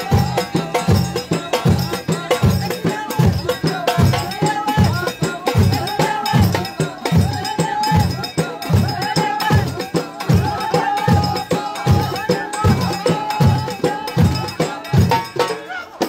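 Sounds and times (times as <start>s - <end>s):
large frame drums beating: 0.0s - 15.5s
voices singing: 0.0s - 16.0s.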